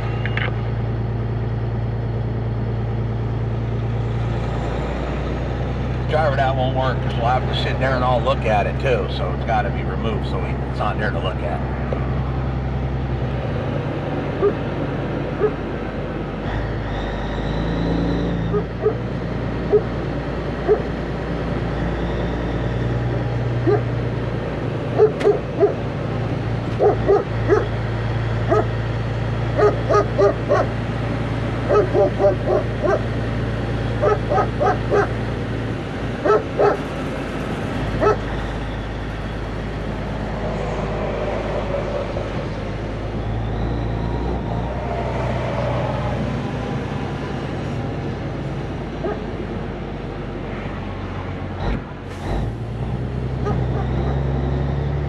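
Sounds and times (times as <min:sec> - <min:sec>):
diesel truck engine droning: 0:00.0 - 0:55.0
dog barking: 0:14.4 - 0:14.6, 0:15.4 - 0:15.6, 0:18.5 - 0:19.0, 0:20.7 - 0:20.9, 0:23.6 - 0:23.9, 0:25.0 - 0:25.8, 0:26.8 - 0:27.7, 0:28.5 - 0:28.7, 0:29.6 - 0:30.7, 0:31.7 - 0:33.1, 0:34.0 - 0:35.2, 0:36.2 - 0:36.8, 0:38.0 - 0:38.2, 0:49.0 - 0:49.3.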